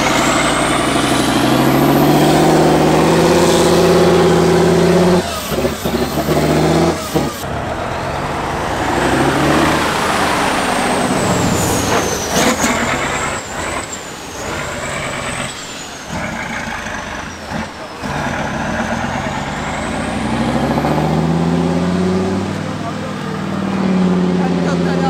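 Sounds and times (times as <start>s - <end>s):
high whine: 0.0s - 21.8s
diesel truck engine working hard: 0.0s - 25.0s
truck churning through mud: 0.0s - 25.0s.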